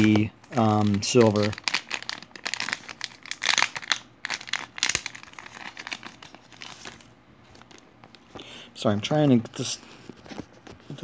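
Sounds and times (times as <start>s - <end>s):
plastic wrapper crinkling: 0.0s - 8.2s
cards rustling: 0.0s - 8.4s.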